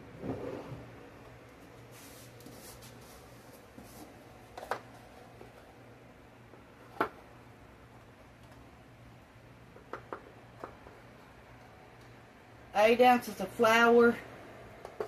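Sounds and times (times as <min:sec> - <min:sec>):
steady low hum: 0:00.0 - 0:15.0
soft rustle: 0:01.8 - 0:04.3.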